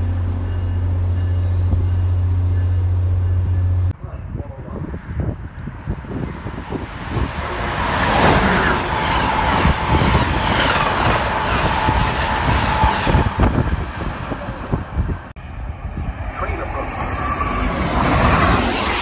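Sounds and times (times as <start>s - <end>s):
train wheels rushing on rails: 6.0s - 15.3s.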